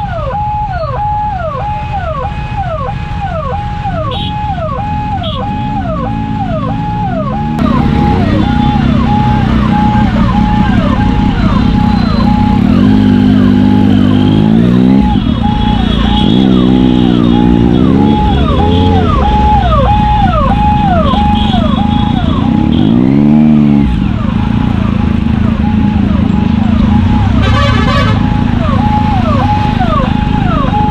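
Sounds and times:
ambulance siren: 0.0s - 30.9s
motorcycle engines revving: 2.5s - 30.9s.

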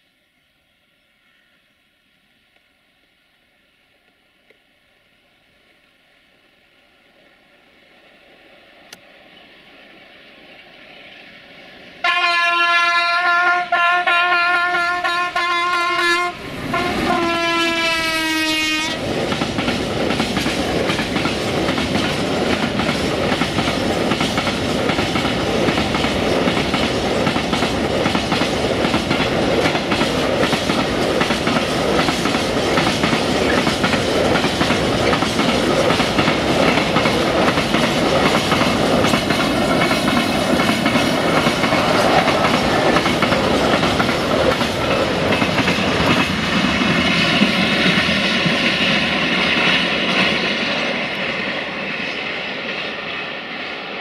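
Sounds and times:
locomotive horn: 12.0s - 19.0s
train wheels clattering over rail joints: 19.0s - 50.6s.

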